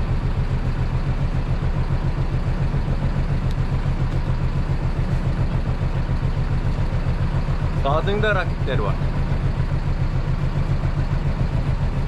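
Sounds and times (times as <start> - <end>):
boat engine running: 0.0 - 12.0.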